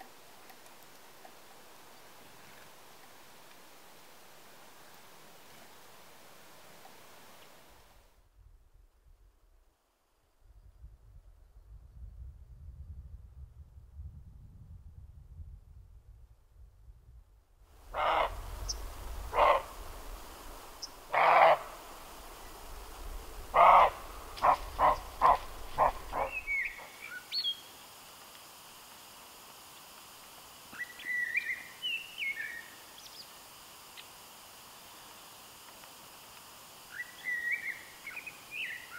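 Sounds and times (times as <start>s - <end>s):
deer barking: 17.9s - 18.5s, 19.2s - 19.8s, 21.0s - 22.2s, 23.4s - 26.9s
blackbird whistling: 26.1s - 27.6s, 30.8s - 32.6s, 36.9s - 38.9s.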